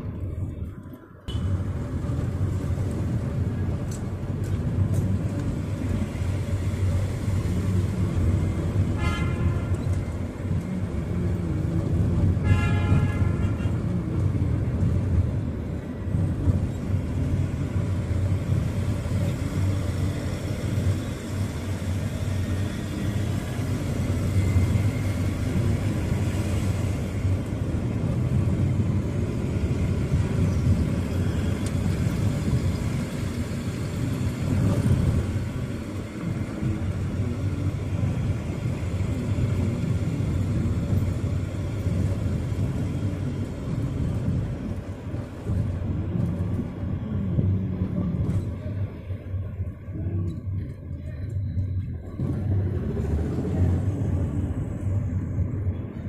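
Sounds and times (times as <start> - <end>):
car driving rumble: 0.0 - 56.0
car horn toots: 9.0 - 9.8, 12.4 - 13.8.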